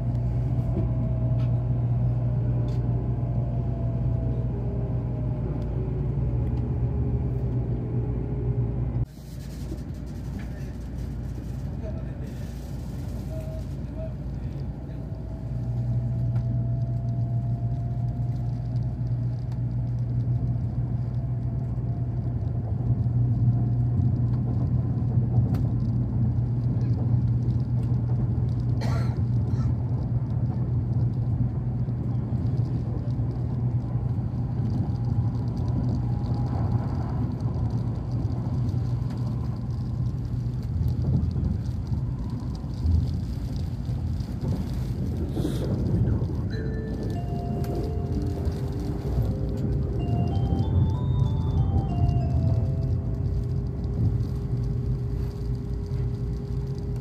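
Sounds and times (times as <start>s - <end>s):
train car rumble and hum: 0.0s - 57.0s
faint rising whine: 46.2s - 57.0s.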